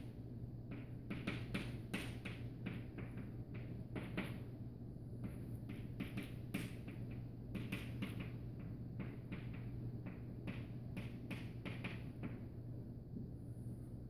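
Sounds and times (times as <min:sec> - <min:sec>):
steady low hum: 0:00.0 - 0:14.0
chalk tapping and scratching: 0:05.2 - 0:12.4.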